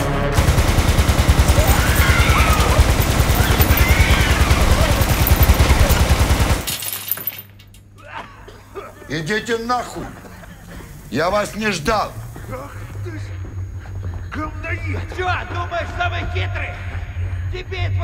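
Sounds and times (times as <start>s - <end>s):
machine gun firing burst: 0.3s - 6.8s.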